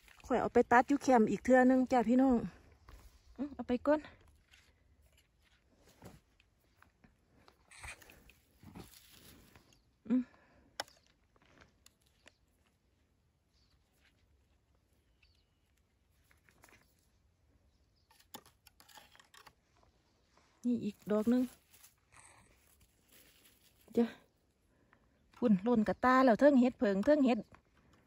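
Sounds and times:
mushrooms rustling in wicker basket: 0:20.6 - 0:24.2.

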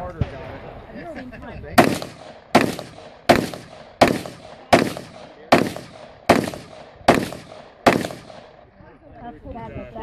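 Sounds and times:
rifle semi-automatic shots: 0:01.8 - 0:08.6.

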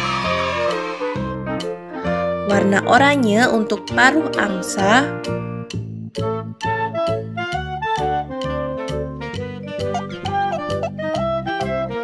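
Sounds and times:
upbeat children's music: 0:00.0 - 0:12.0.

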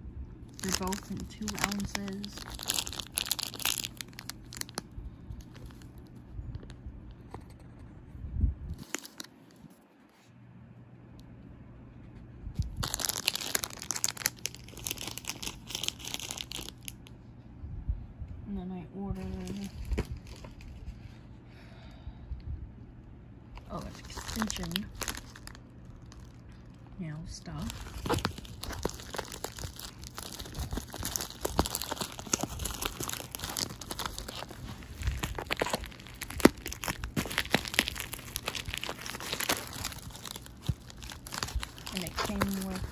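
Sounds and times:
plastic bags crinkling: 0:00.5 - 0:06.0, 0:08.8 - 0:09.5, 0:12.6 - 0:17.0, 0:19.2 - 0:20.8, 0:23.6 - 0:42.9.

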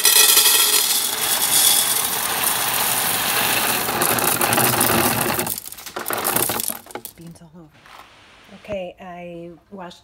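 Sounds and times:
coffee beans pouring into canister: 0:00.0 - 0:07.1.

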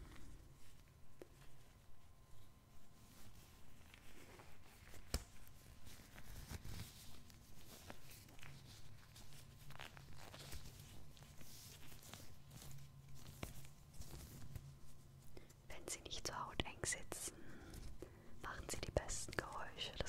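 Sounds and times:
latex gloves crinkling: 0:00.2 - 0:15.7
glove snap: 0:05.1 - 0:05.3.

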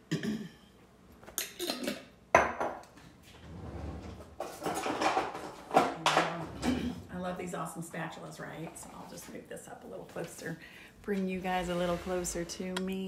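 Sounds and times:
glass jar set down on countertop: 0:02.3 - 0:02.8.

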